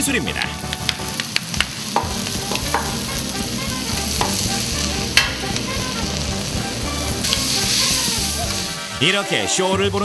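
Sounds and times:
food sizzling on a griddle: 0.1 - 10.0
wooden shakers knocking on griddle: 0.8 - 3.1, 4.2 - 4.5, 5.2 - 5.5.

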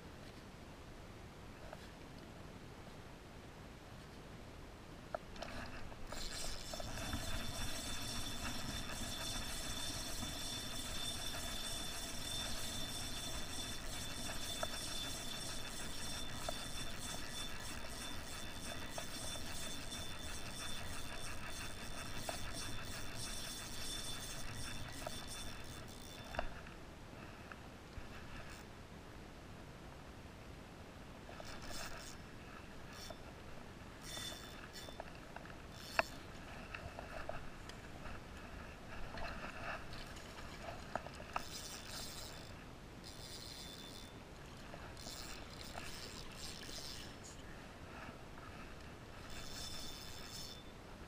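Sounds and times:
fishing reel gears whirring: 5.4 - 26.6, 28.1 - 28.7, 31.3 - 32.2, 32.9 - 33.2, 34.0 - 35.1, 35.7 - 36.3, 39.2 - 47.3, 49.2 - 50.7
reel click: 5.4 - 26.6, 35.8 - 36.2, 40.9 - 42.5, 45.0 - 47.1.

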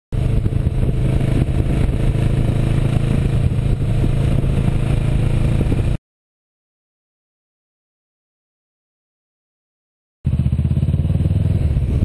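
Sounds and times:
motorcycle engine droning: 0.2 - 6.0, 10.3 - 12.0
wind rush: 0.2 - 6.0.

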